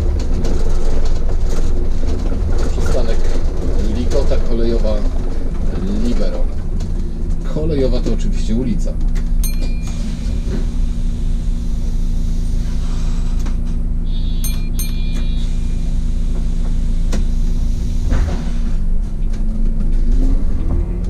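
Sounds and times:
bus engine idling: 0:00.0 - 0:19.7
high electronic beeps: 0:09.4 - 0:10.4, 0:14.1 - 0:16.0.

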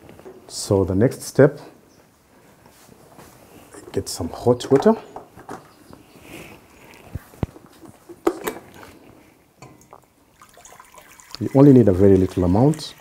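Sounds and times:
kitchenware clicks and knocks: 0:08.1 - 0:08.7.

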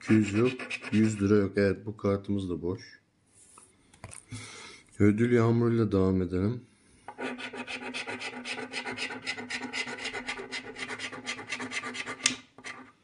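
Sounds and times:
coin scratching lottery card: 0:00.0 - 0:01.3, 0:07.1 - 0:12.9.

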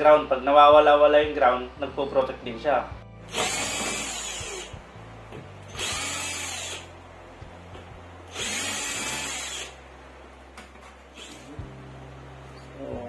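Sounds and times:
electric power driver running: 0:03.2 - 0:04.9, 0:05.6 - 0:07.0, 0:08.0 - 0:09.9.

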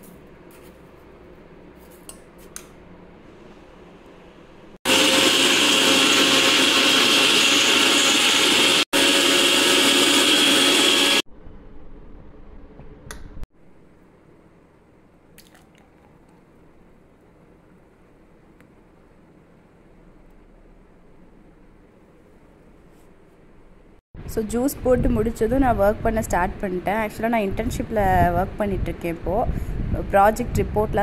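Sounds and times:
blender running: 0:04.9 - 0:11.2.

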